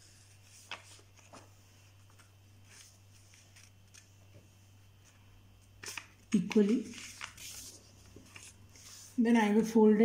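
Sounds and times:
paper rustling and folding: 0.0 - 4.4, 5.8 - 9.2
low steady hum: 0.0 - 10.0.

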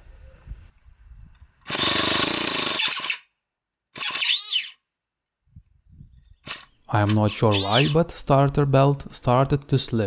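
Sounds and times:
electric starter motor cranking engine: 1.6 - 3.3, 3.9 - 4.8, 6.4 - 8.0.

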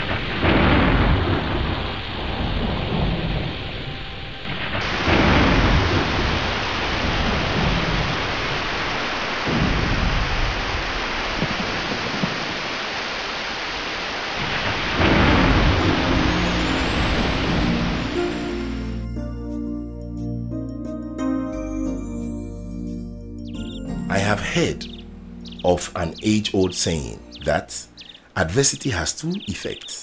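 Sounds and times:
rolls of thunder: 0.0 - 12.7, 14.4 - 16.4
heavy rain pouring: 0.0 - 19.1, 24.0 - 30.0.

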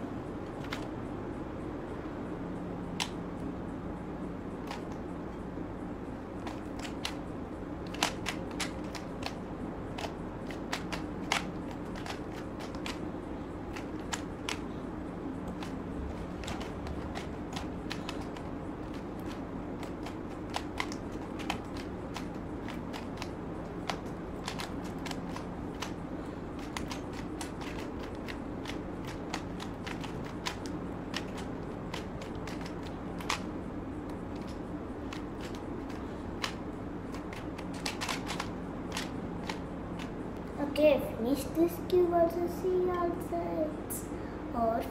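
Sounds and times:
puzzle cube clicking: 0.5 - 0.9, 4.6 - 5.0, 6.4 - 7.2, 7.8 - 13.1, 13.7 - 14.7, 15.4 - 26.0, 26.6 - 33.5, 34.3 - 40.1.

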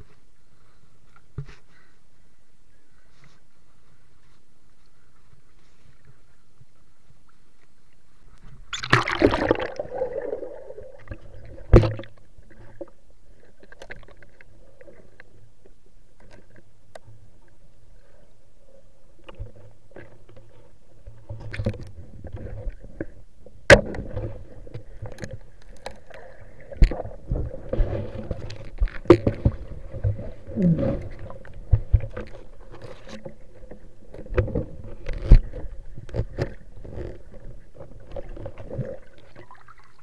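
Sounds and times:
water rushing and bubbling: 8.7 - 12.9
sharp underwater knocks: 11.0 - 12.1, 23.7 - 24.4.

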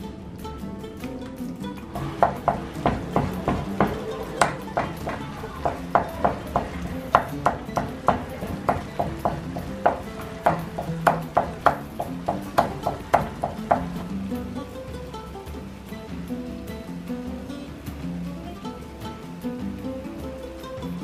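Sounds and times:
wooden spoon tapping a frying pan: 1.9 - 14.5.

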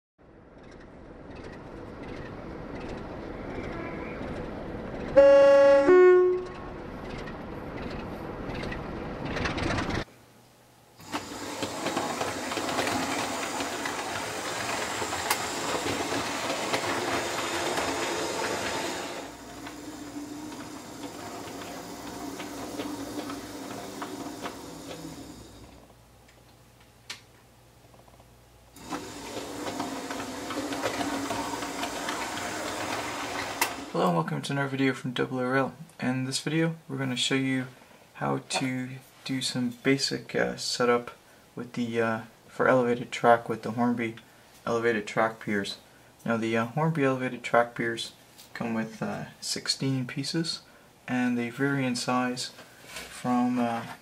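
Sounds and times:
train running with rail clatter: 0.6 - 10.0, 11.0 - 25.7, 28.8 - 34.0
two-tone train horn: 5.2 - 6.6
model train motor whirring: 11.0 - 25.8, 28.8 - 34.0.

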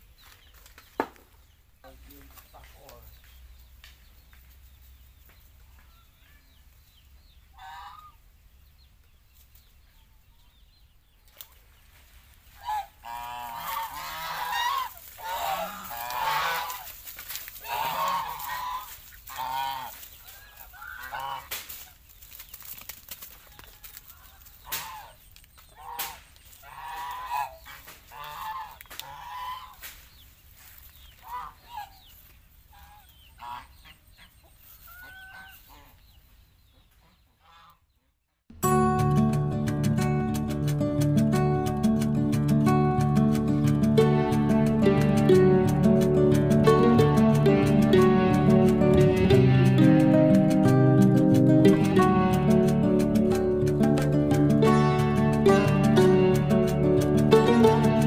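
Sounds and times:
geese honking: 7.5 - 8.2, 12.5 - 21.6, 24.1 - 29.8, 31.2 - 32.0, 32.7 - 36.0, 37.0 - 37.8, 41.2 - 58.0.

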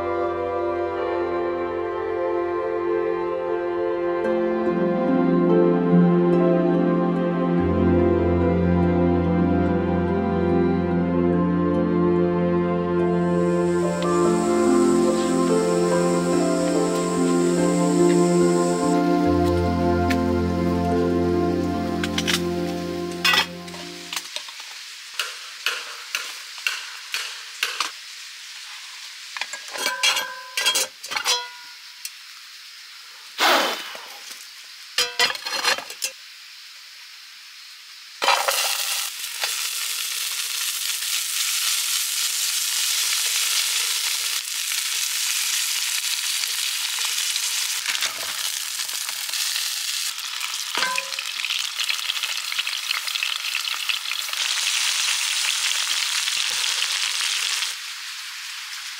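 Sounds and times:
food sizzling in hot oil: 13.2 - 58.9
utensils knocking on frying pan: 25.2 - 27.9, 50.8 - 51.2.

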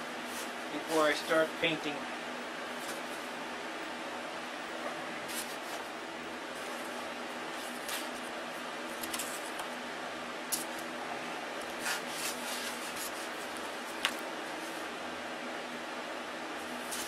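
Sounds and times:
balsa wood rustling and scraping: 0.2 - 1.5, 2.7 - 3.4, 5.2 - 5.9, 6.5 - 9.7, 11.6 - 15.0, 16.6 - 17.0.

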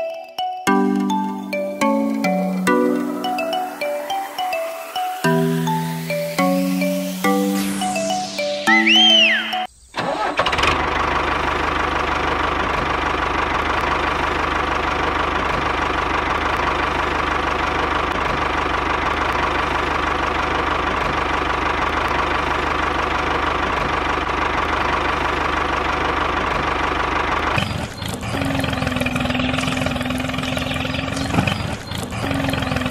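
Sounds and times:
tractor engine running: 10.0 - 32.9.

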